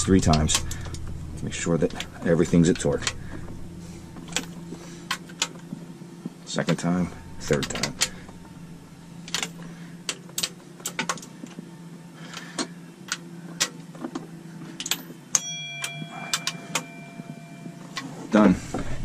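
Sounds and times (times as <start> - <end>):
steady ringing tone: 0.0 - 10.8, 15.0 - 19.0.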